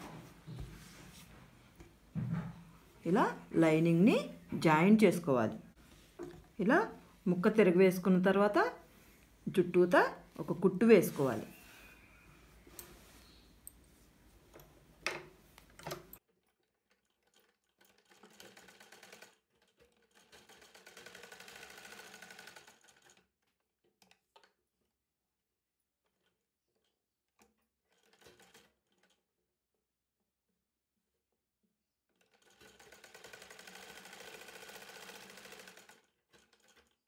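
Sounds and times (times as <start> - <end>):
sewing machine stitching: 15.8 - 23.3, 27.8 - 29.2, 32.2 - 37.0
sewing machine clicks: 16.9 - 23.2, 27.9 - 29.2, 32.2 - 37.0.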